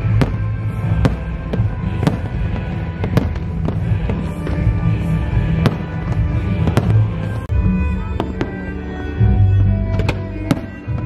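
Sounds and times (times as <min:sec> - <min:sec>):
fireworks bangs: 0:00.0 - 0:07.5, 0:10.0 - 0:11.0
background music: 0:00.0 - 0:11.0.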